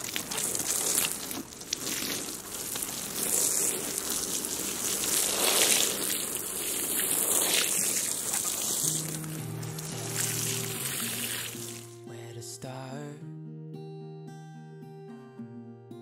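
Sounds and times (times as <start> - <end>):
water spraying onto soil: 0.0 - 12.0.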